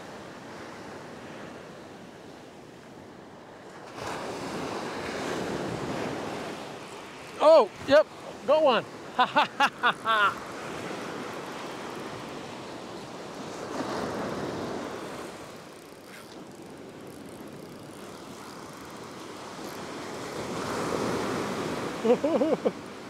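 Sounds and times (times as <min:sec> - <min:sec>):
surf washing up beach: 0:00.0 - 0:23.0
person speaking: 0:07.4 - 0:10.4.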